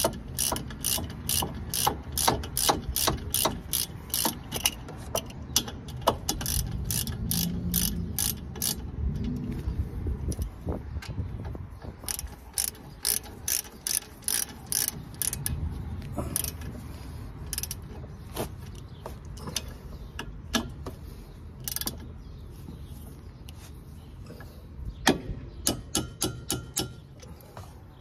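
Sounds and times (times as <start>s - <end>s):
socket ratchet clicking: 0.0s - 9.3s, 12.0s - 15.6s.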